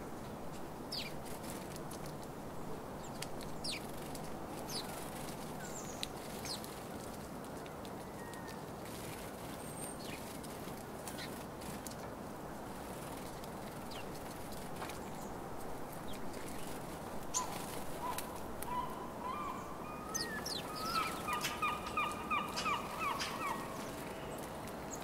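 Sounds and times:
sparrows chirping: 0:03.0 - 0:04.0, 0:18.8 - 0:25.0.

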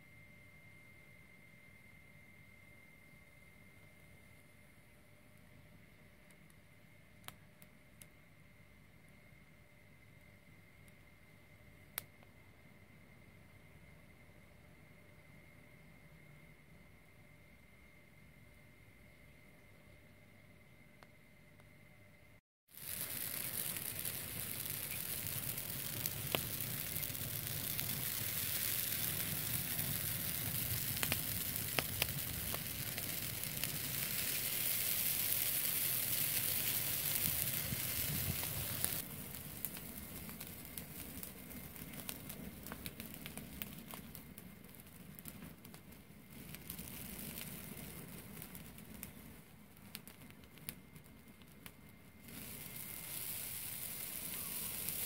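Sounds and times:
dry grass burning and crackling: 0:22.7 - 0:55.0
sharp pops of fire: 0:22.7 - 0:55.0.

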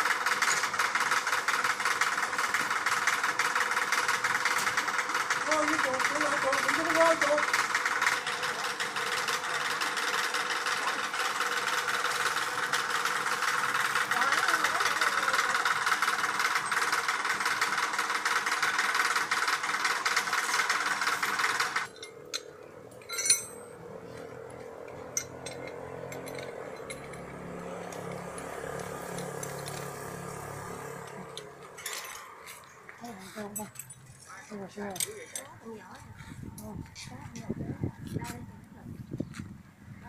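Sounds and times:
metal hardware clinking: 0:21.9 - 0:32.7, 0:33.4 - 0:35.6.

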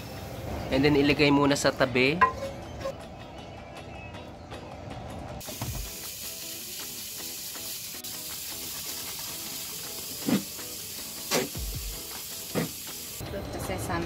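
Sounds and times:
food sizzling in a pan: 0:05.4 - 0:13.2.

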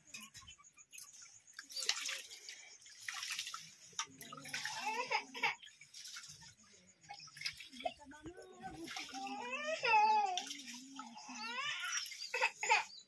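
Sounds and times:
rice splashing and sloshing in water: 0:01.3 - 0:09.4.

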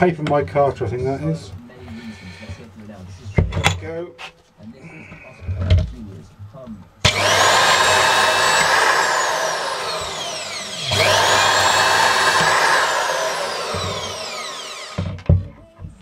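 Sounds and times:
band saw whining: 0:07.1 - 0:15.2.

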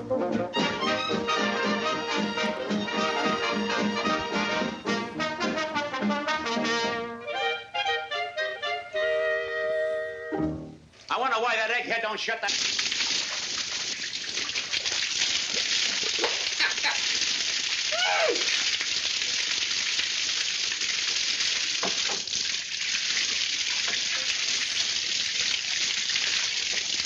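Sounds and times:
water spraying from leaking pipe: 0:12.4 - 0:27.0
rising and falling cry: 0:17.9 - 0:18.5.

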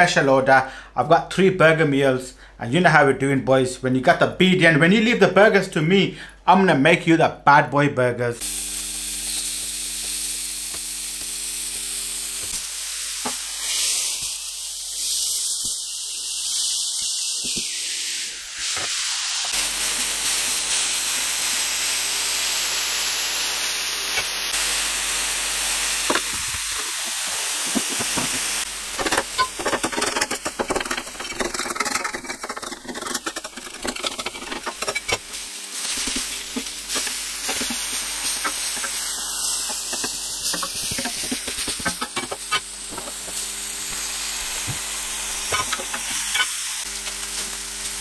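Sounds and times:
meat sizzling on a griddle: 0:08.4 - 0:48.0
metal spatula scraping griddle: 0:27.9 - 0:39.0, 0:39.6 - 0:43.4, 0:45.4 - 0:46.5.

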